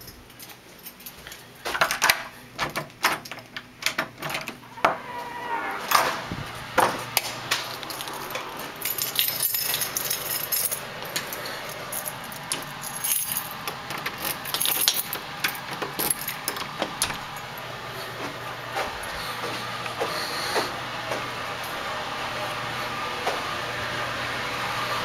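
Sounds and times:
door hardware rattling and clicking: 1.7s - 4.6s, 7.6s - 17.5s.

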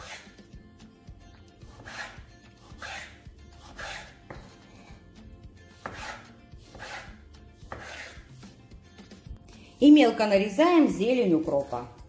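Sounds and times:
knife cutting on wooden board: 0.0s - 0.4s, 1.6s - 8.4s.

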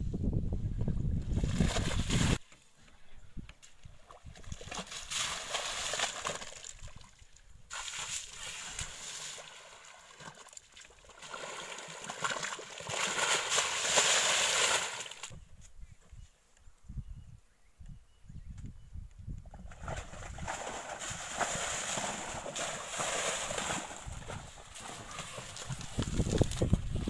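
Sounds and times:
muddy water sloshing and splashing: 3.9s - 15.3s, 19.5s - 27.0s.

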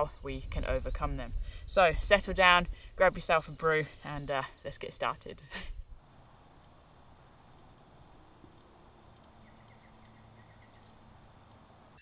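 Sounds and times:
bird chirping: 0.0s - 12.0s
low background hiss: 0.0s - 12.0s.

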